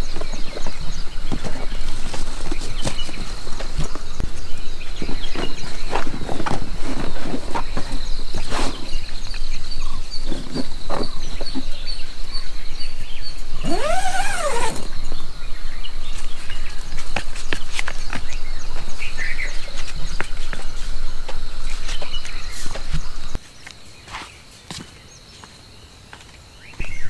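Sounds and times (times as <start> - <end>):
tent flap clicks and rustles: 0.0 - 12.0, 13.2 - 15.3
insect chirping: 0.0 - 17.0.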